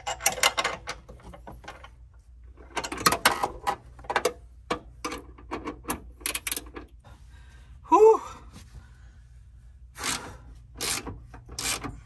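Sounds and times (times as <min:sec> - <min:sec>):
ratchet wrench clicking: 0:10.8 - 0:11.9.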